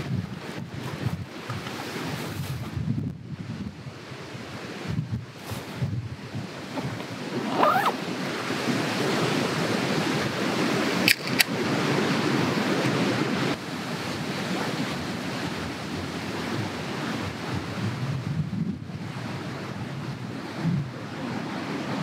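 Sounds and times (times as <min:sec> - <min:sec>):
wind rushing through trees: 0:00.0 - 0:22.0
beer can pull-tab cracking open: 0:11.1 - 0:11.5.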